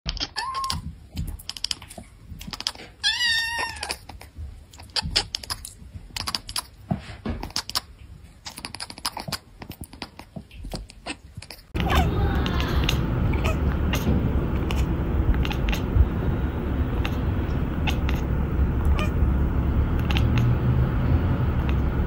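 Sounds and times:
cat chattering and chirping: 0.1s - 6.8s, 7.4s - 22.0s
cat wavering call: 11.8s - 14.2s, 17.0s - 19.3s.

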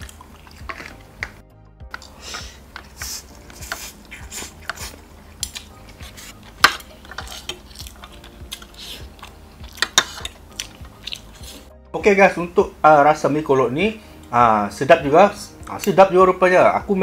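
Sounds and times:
cutlery clinking and scraping bowl: 0.5s - 1.0s, 3.6s - 8.7s, 9.8s - 10.4s.

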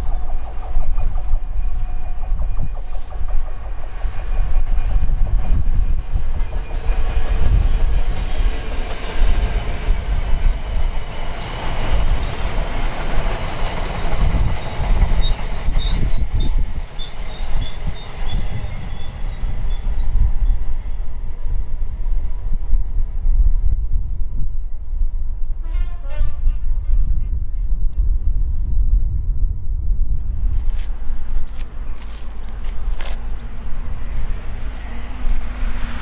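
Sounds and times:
freight train rumbling and clattering: 0.0s - 36.0s
high-pitched wheel squeaks: 13.6s - 20.6s.

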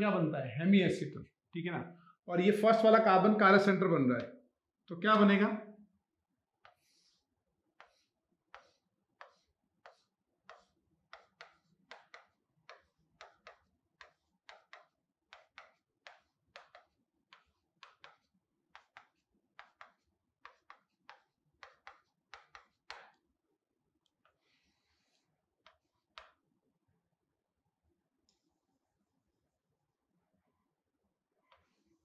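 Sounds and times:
stylus tapping on screen: 7.8s - 23.2s, 25.0s - 26.4s.

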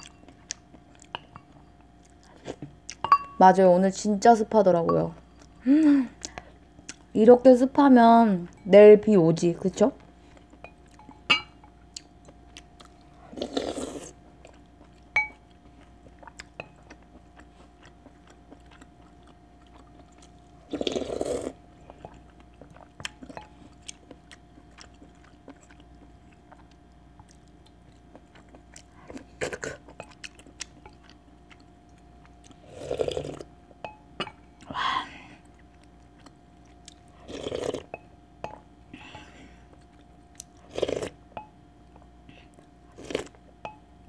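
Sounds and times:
faint steady hum: 0.0s - 44.0s
chewing: 11.9s - 33.5s, 35.4s - 37.9s
slurping broth from spoon: 37.2s - 37.9s, 40.6s - 41.2s, 43.0s - 43.4s.

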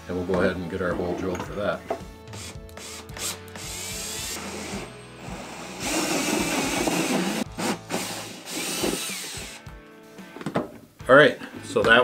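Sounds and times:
cordless drill boring plastic: 2.4s - 9.6s.

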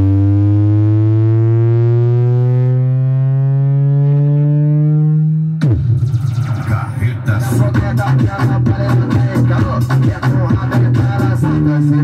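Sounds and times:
rising bass test tone: 0.0s - 7.7s
loud bass-heavy music: 0.0s - 12.0s.

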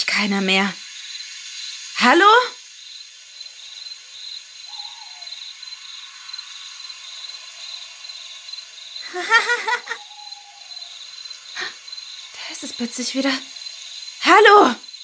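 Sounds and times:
crickets chirring: 0.0s - 15.0s
child giggling: 9.0s - 10.3s.

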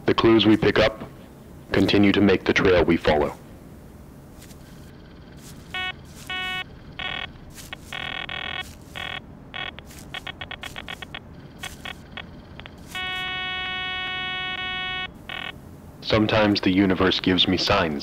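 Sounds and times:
metal detector beeping: 4.4s - 15.6s.

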